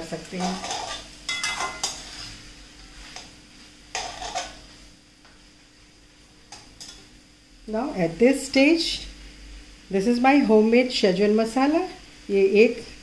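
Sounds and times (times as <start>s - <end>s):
low sizzle of frying: 0.0s - 13.0s
spatula scraping metal pan: 0.3s - 2.4s, 3.9s - 4.6s.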